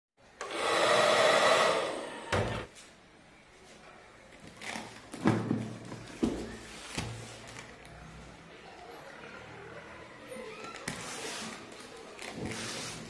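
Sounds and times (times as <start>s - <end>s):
fan motor whirring: 0.4s - 2.7s.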